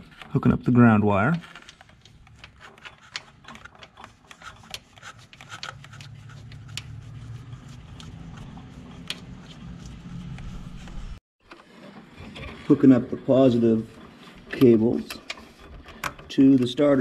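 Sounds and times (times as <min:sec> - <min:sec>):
low hum: 0:06.6 - 0:11.2.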